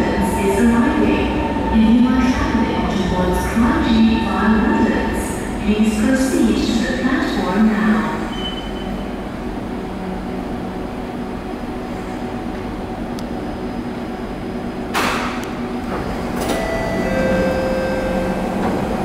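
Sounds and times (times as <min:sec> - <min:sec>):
metro train humming: 0:00.0 - 0:19.0
train doors sliding open: 0:14.8 - 0:19.0
door chime tone: 0:16.5 - 0:18.5.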